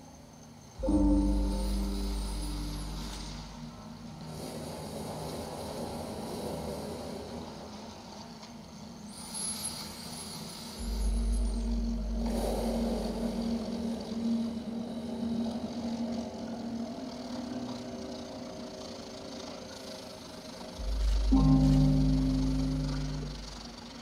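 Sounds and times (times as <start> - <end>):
high sweeping whistle: 0.8 - 4.0, 9.2 - 17.6, 20.8 - 23.9
steady held tone: 0.8 - 4.0, 10.8 - 18.0, 20.7 - 24.0
deep sub-bass rumble: 10.8 - 16.4, 20.8 - 23.9.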